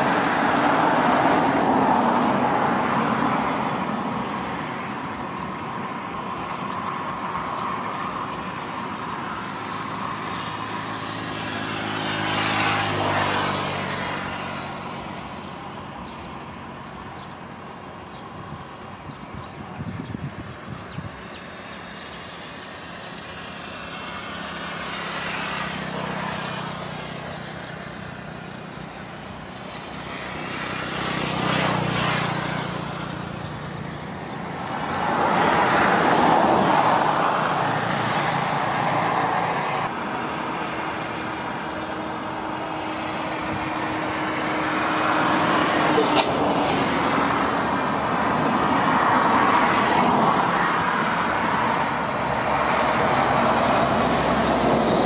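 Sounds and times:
diesel engines working under load: 0:00.0 - 0:55.0.

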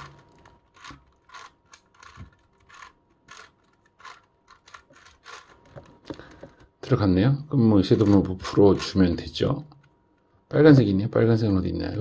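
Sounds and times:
puzzle cube plastic clicks: 0:00.0 - 0:06.7.

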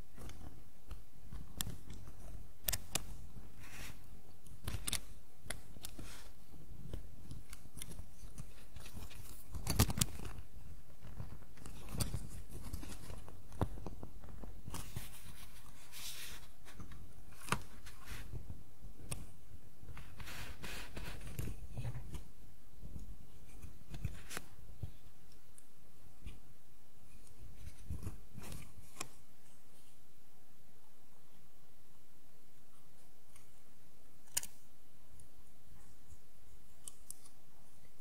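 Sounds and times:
plastic clicks: 0:34.2 - 0:34.6.

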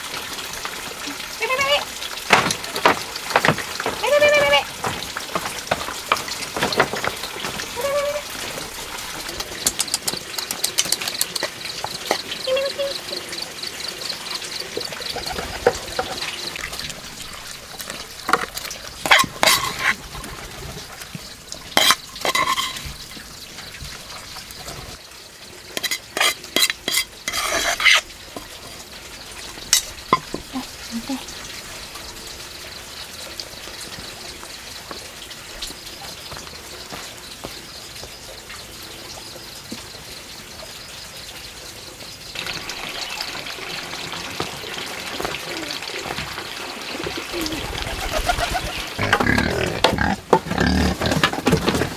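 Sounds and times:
puppies chewing and lapping: 0:00.0 - 0:25.0
sharp clicks and knocks: 0:04.8 - 0:07.8, 0:09.2 - 0:12.3.

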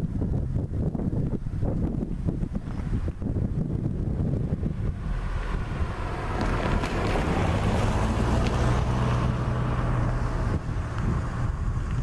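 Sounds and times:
wind rumbling on microphone: 0:00.0 - 0:12.0
distant train hum: 0:03.9 - 0:12.0.

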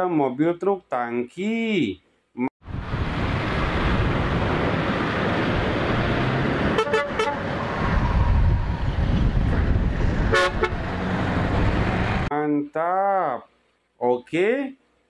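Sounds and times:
truck engine driving past: 0:02.7 - 0:12.3
truck horn toots: 0:06.7 - 0:07.5, 0:10.3 - 0:10.9.

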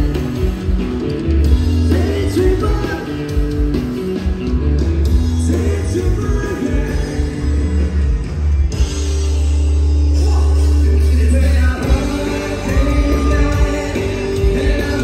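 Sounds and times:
live rock band: 0:00.0 - 0:15.0
person singing: 0:10.1 - 0:15.0.

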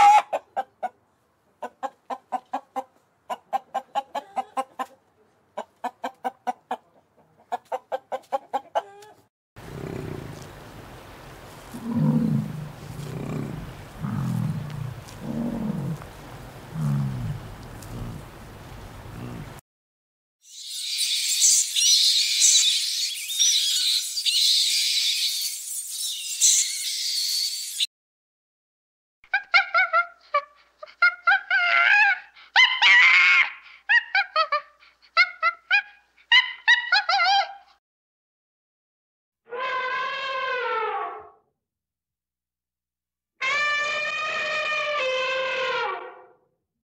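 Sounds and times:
yak grunting: 0:09.6 - 0:10.6, 0:11.7 - 0:18.4, 0:19.0 - 0:19.6.

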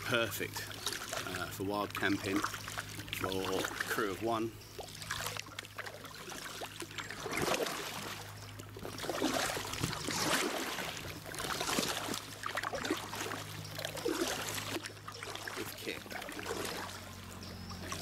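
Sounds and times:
low steady hum: 0:00.0 - 0:18.0
paddle splashing in water: 0:00.0 - 0:18.0.

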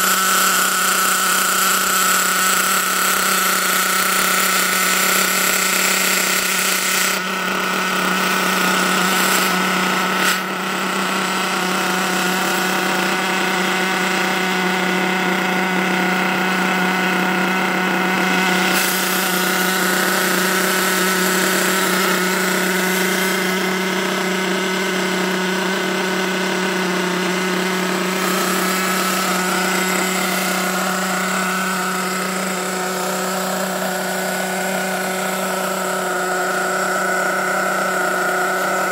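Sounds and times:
small two-stroke engine running: 0:00.0 - 0:38.9.

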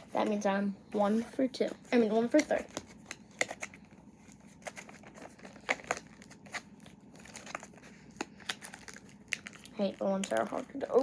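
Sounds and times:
packaging crinkling and rustling: 0:02.1 - 0:11.0
sharp packaging crackles: 0:04.5 - 0:11.0.

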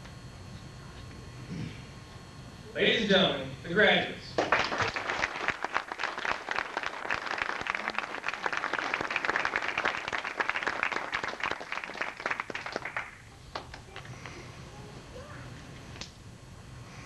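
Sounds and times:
audience applauding: 0:04.4 - 0:14.1.

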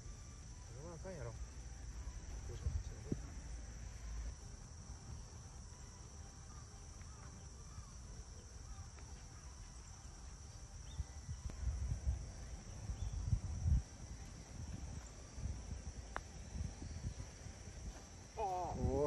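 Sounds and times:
insects buzzing: 0:00.0 - 0:19.0
wind rumbling on microphone: 0:10.1 - 0:19.0.

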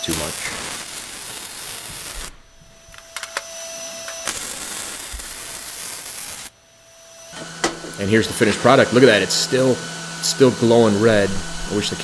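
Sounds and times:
welding pops: 0:00.0 - 0:06.5, 0:07.3 - 0:08.0
welding arc hissing: 0:00.0 - 0:12.0.

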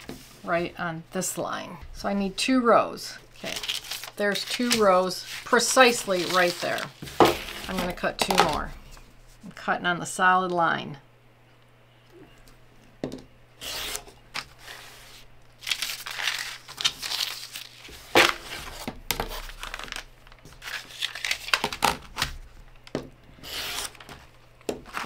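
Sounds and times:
paper rustling and crinkling: 0:03.4 - 0:09.0, 0:14.4 - 0:22.5, 0:23.4 - 0:25.0
rotary cutter slicing paper: 0:13.6 - 0:14.8, 0:23.4 - 0:24.2.

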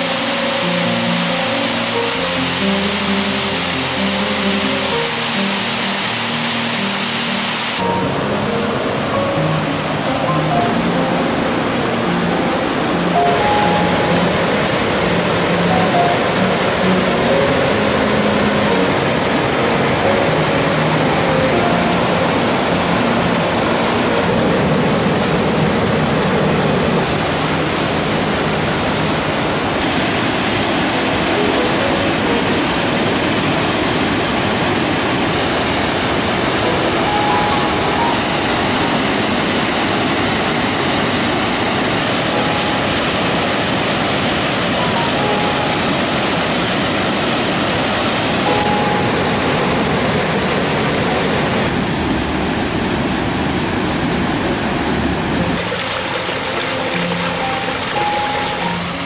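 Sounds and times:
water rushing over boulders: 0:00.0 - 0:59.0.

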